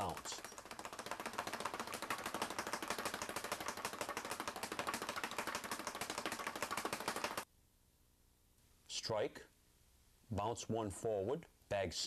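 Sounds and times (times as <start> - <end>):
speed bag knocking on board: 0.0 - 7.5.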